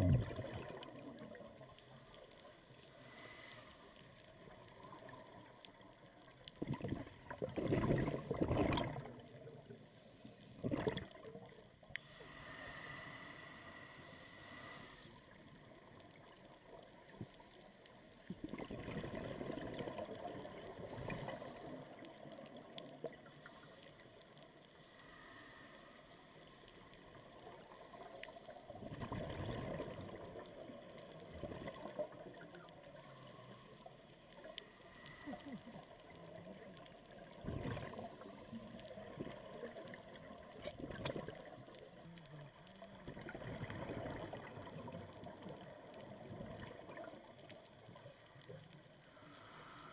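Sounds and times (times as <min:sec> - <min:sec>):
regulator exhaust bubbles underwater: 0:00.0 - 0:01.5, 0:06.5 - 0:09.6, 0:10.6 - 0:11.4, 0:18.3 - 0:21.4, 0:28.8 - 0:30.3, 0:37.4 - 0:38.3, 0:39.0 - 0:41.7, 0:42.9 - 0:47.4
steady water noise: 0:00.0 - 0:49.9.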